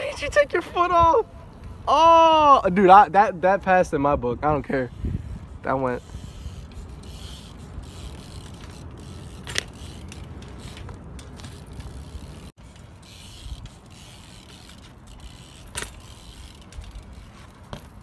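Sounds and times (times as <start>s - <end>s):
bike tyres rolling on pavement: 0.0s - 18.0s
bike drivetrain ticking: 4.9s - 18.0s.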